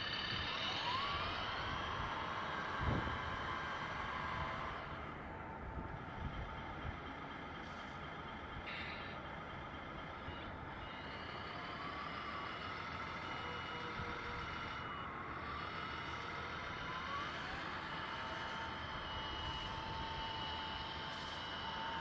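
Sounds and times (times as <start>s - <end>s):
model truck motor whine: 0.0s - 22.0s
reversing beeper beeps: 10.2s - 16.2s, 17.2s - 22.0s.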